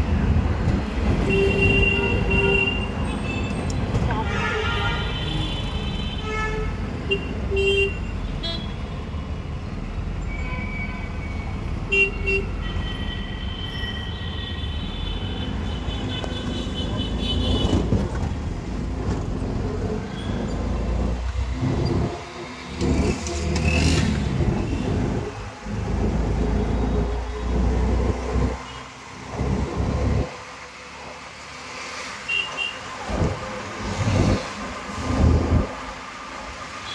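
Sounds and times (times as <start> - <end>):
road traffic rumble: 0.0 - 36.9
vehicle horns honking: 1.2 - 3.5.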